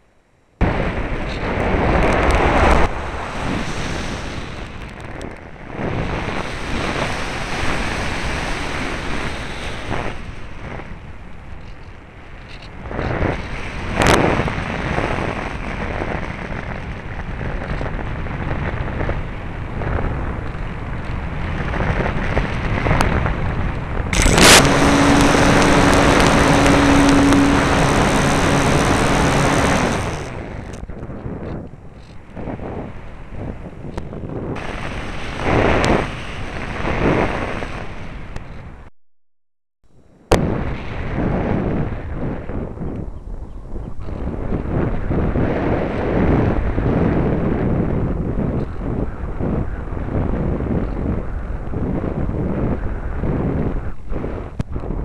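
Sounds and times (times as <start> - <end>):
wind buffeting microphone: 0.6 - 38.9, 40.0 - 55.0
electric motor and propeller hum: 21.9 - 32.8, 33.4 - 38.7.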